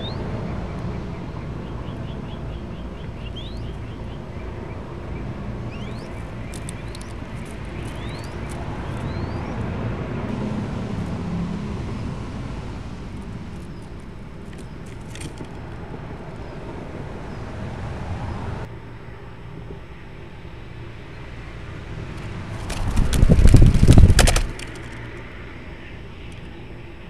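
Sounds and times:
steady background hum: 0.0 - 27.0
dove wings beating rapidly: 5.7 - 9.3, 22.2 - 25.2.

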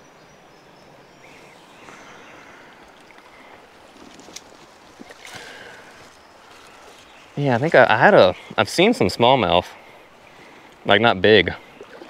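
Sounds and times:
river water flowing over rocks: 0.4 - 8.9
faint clicks: 2.8 - 5.9.

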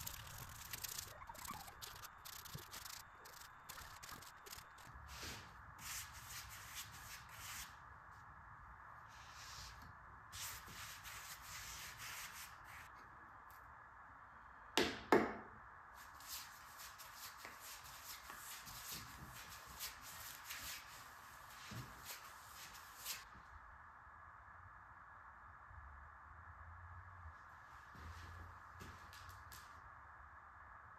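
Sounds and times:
sandpaper rubbing wood: 0.0 - 4.9.

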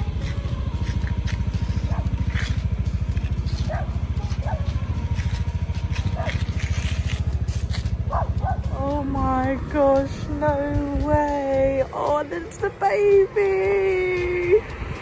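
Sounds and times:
small motorbike engine running: 0.0 - 15.0.

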